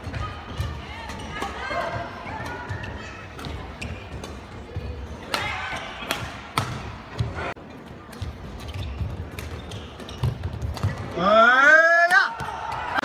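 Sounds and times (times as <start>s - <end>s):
shoes thudding and squeaking: 0.0s - 7.6s, 8.2s - 11.1s
rackets striking shuttlecock: 5.2s - 7.0s.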